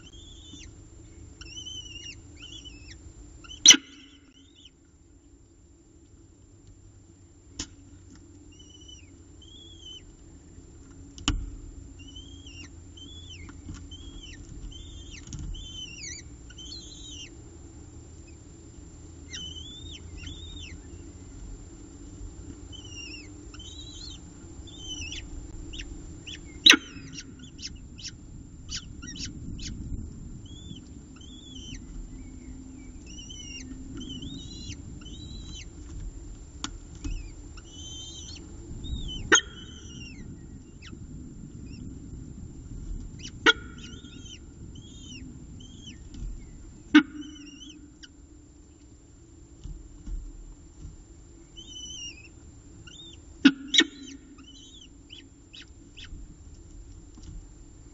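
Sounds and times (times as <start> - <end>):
falcon chicks begging chirps: 0.0 - 4.8, 8.5 - 10.2, 12.0 - 17.4, 19.2 - 21.4, 22.6 - 36.0, 36.8 - 41.0, 43.1 - 48.2, 51.4 - 56.2
steady low hum: 0.0 - 57.9.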